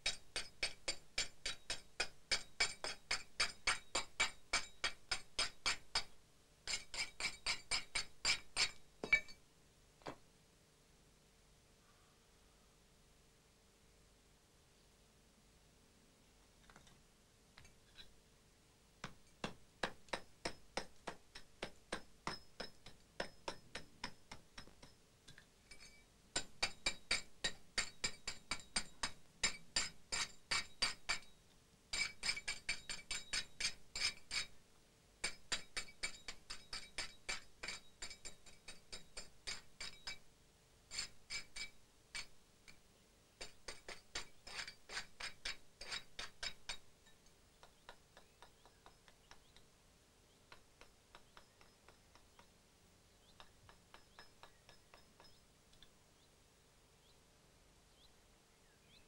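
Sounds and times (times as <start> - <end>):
hammer striking chisel on stone: 0.0 - 9.4, 19.0 - 31.3, 32.0 - 34.5, 35.2 - 40.2, 43.4 - 46.8, 47.6 - 49.6, 50.5 - 52.5, 53.4 - 55.4.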